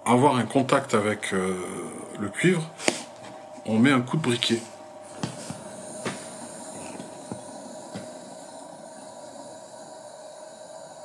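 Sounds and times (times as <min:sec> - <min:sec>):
torch flame hissing: 0:04.4 - 0:11.0.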